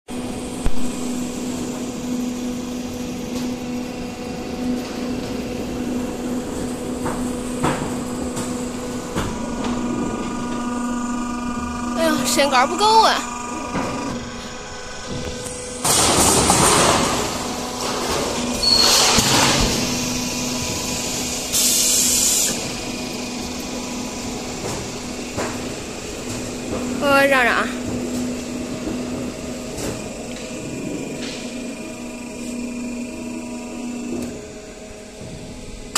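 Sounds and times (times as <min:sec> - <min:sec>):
electric motor hum: 0:00.1 - 0:35.9
loud hiss: 0:18.6 - 0:22.7.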